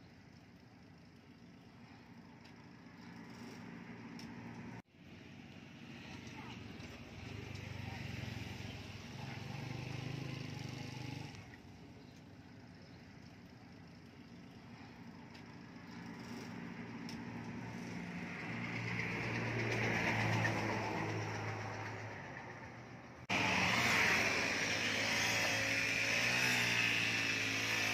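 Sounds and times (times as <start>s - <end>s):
vehicle engine hum: 0.0s - 27.9s
vehicle approaching and passing: 2.8s - 11.6s, 15.8s - 27.9s.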